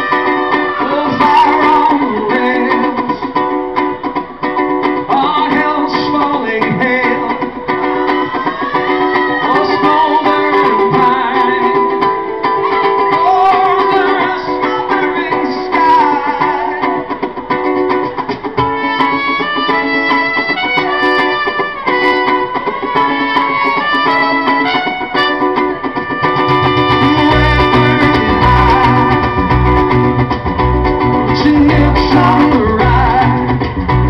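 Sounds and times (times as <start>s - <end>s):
live band playing: 0.0s - 34.0s
trumpet melody: 18.7s - 30.2s.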